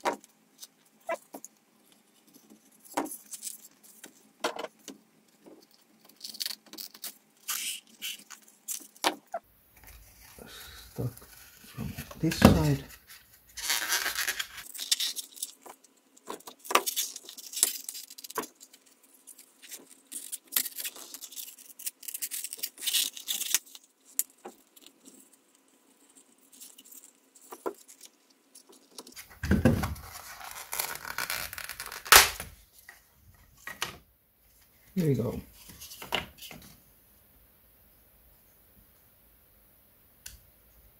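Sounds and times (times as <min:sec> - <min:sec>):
foam creaking and cracking: 0:09.9 - 0:18.7, 0:29.1 - 0:32.5
loud foam crack: 0:32.0 - 0:32.5.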